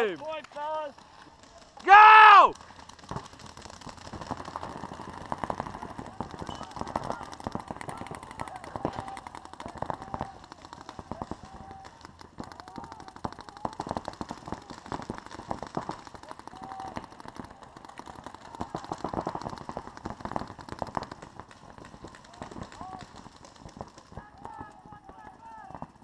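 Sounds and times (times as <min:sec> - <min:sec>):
paintball markers firing: 0:00.0 - 0:26.0.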